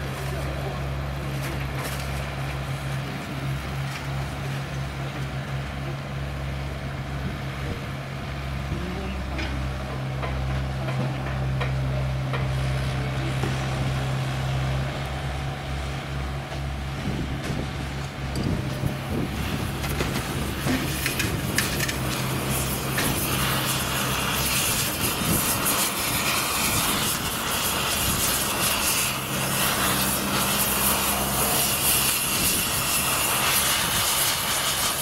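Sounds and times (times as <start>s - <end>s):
diesel engines running: 0.0s - 35.0s.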